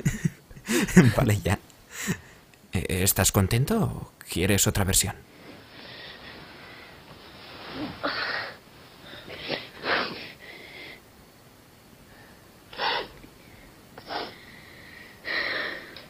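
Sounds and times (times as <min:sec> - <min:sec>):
woman sobbing: 0:00.0 - 0:01.4.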